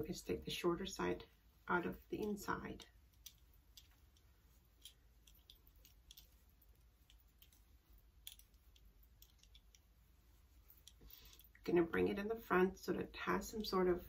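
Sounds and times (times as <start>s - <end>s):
faint clicks of scarf handled: 2.2s - 11.6s.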